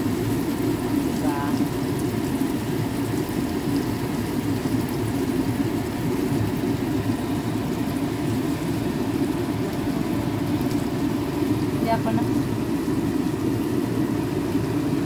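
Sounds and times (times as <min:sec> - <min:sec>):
meat sizzling on grill pan: 0:00.0 - 0:15.0
steady low hum: 0:03.7 - 0:15.0.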